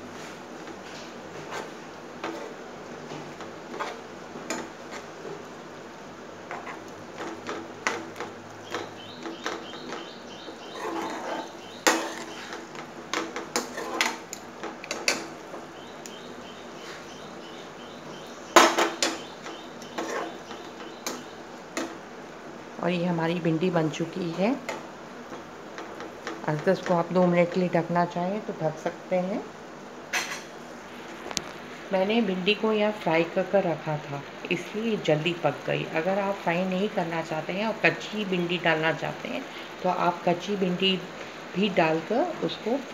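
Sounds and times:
low steady hiss: 0:00.0 - 0:42.9
spatula scraping a frying pan: 0:01.3 - 0:05.2, 0:06.5 - 0:15.3, 0:19.8 - 0:21.9.

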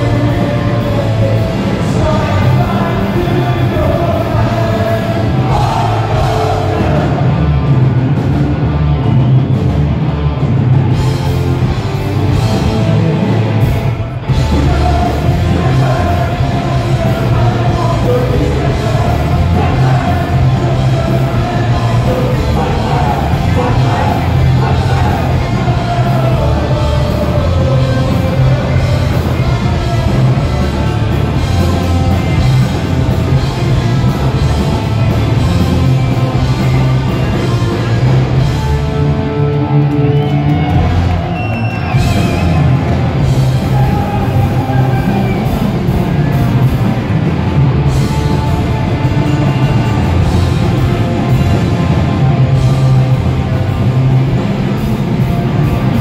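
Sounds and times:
shouted vocals: 0:00.0 - 0:08.0, 0:14.4 - 0:38.3, 0:39.6 - 0:46.4
bass: 0:00.0 - 0:56.0
distorted guitars: 0:00.0 - 0:56.0
drums: 0:00.0 - 0:56.0.

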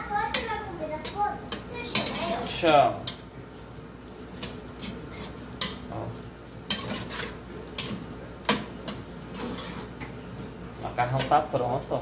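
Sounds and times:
utensil stirring pasta in sauce: 0:00.0 - 0:12.0
clinks and scrapes on metal pot: 0:00.3 - 0:03.2, 0:04.4 - 0:05.8, 0:06.7 - 0:10.0.

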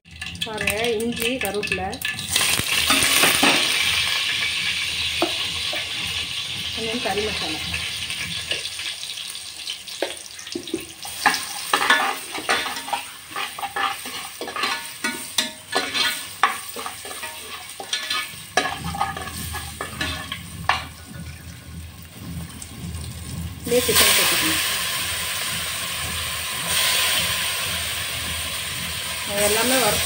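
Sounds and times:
oil sizzling: 0:00.1 - 0:30.0
ladle scraping in a metal pot: 0:02.0 - 0:06.7, 0:11.0 - 0:21.0.

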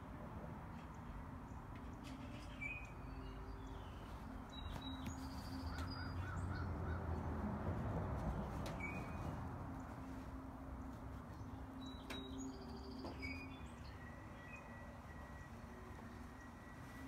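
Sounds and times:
birds chirping: 0:00.9 - 0:07.3.

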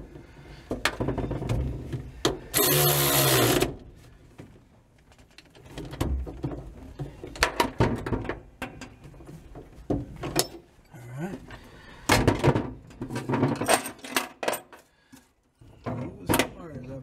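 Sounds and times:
electric ratchet running: 0:02.5 - 0:03.7.

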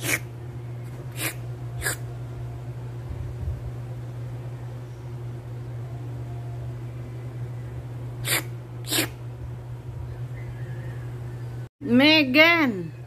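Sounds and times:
low hum: 0:00.0 - 0:11.7
person making slurping noises: 0:08.2 - 0:09.1.

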